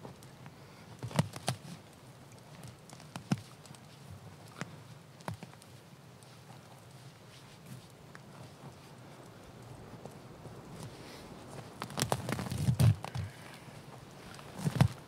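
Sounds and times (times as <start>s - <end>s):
sharp snaps and crackles: 0.0s - 10.9s, 11.5s - 15.0s
moss being torn up rustling: 11.6s - 13.4s.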